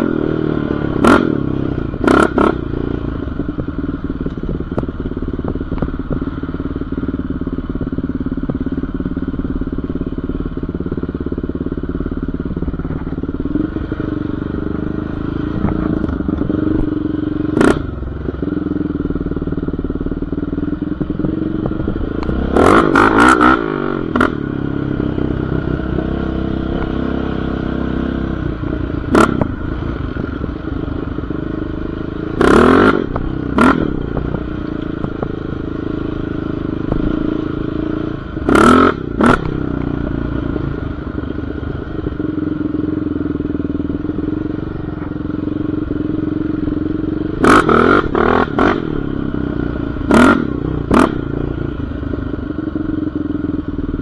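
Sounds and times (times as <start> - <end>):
atv engine running: 0.0 - 54.0.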